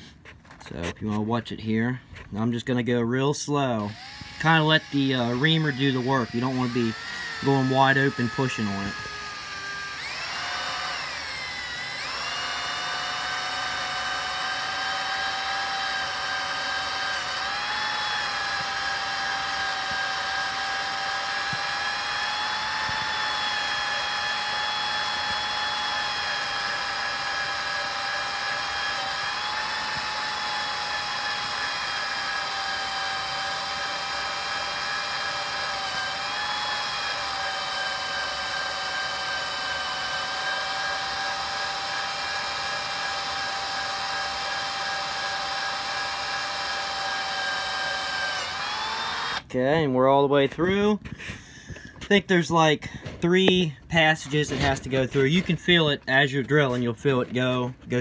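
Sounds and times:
electric drill motor whine: 3.8s - 49.5s.

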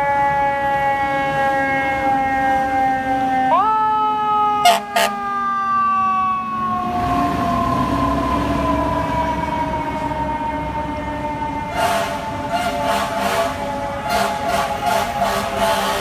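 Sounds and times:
fire engine siren: 0.0s - 16.0s
short loud horn blasts: 11.8s - 16.0s.

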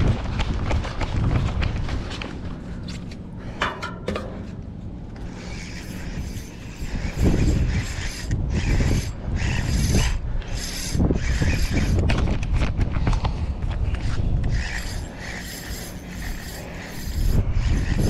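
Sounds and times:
fishing reel whirring and clicking: 5.2s - 12.6s, 14.0s - 18.0s.

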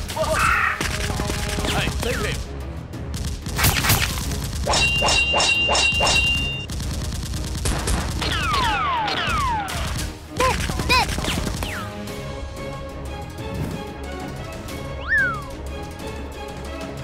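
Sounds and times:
gunshots: 0.0s - 11.9s
falling whistles: 15.0s - 15.5s.

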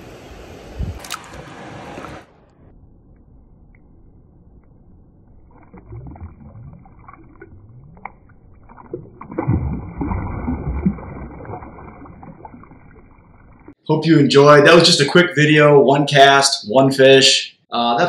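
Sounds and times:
shallow water splashing: 4.6s - 13.8s.

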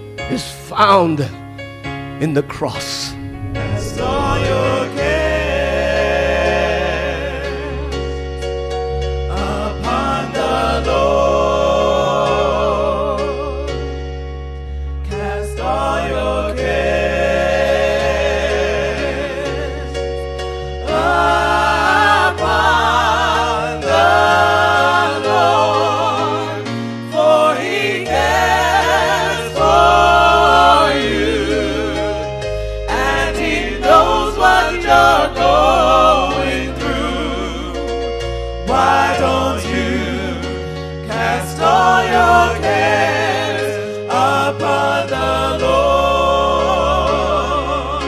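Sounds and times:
steady low notes: 2.2s - 6.4s
voices singing with vibrato: 2.6s - 8.2s, 9.3s - 13.8s, 15.1s - 19.9s, 20.8s - 38.0s, 38.6s - 48.0s.

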